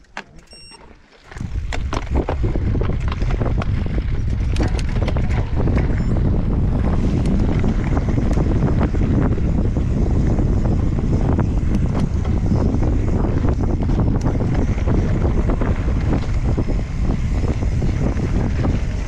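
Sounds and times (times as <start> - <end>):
short beep: 0.4 - 0.9
bike rattling over gravel: 0.8 - 19.0
wind rumbling on microphone: 1.3 - 19.0.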